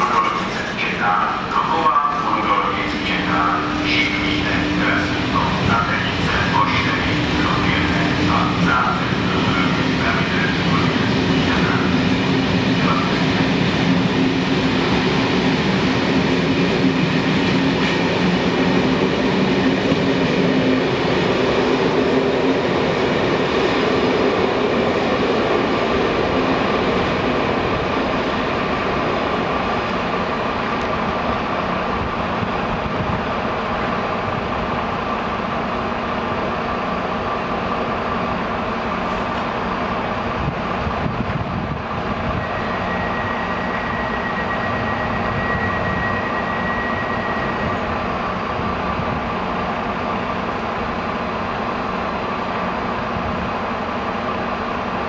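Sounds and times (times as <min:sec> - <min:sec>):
train wheels rumbling on track: 0:00.0 - 0:55.0.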